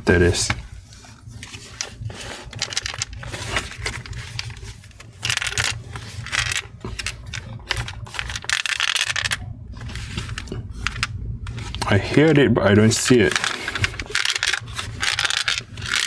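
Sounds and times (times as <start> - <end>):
hands scraping plastic case: 1.4 - 12.3, 12.9 - 16.0
loose plastic piece rattling: 2.5 - 9.4, 12.9 - 16.0.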